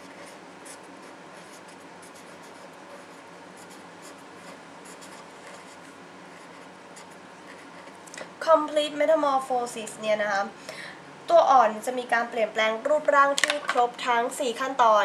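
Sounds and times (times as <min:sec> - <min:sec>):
pen scratching on paper: 0:00.0 - 0:08.0.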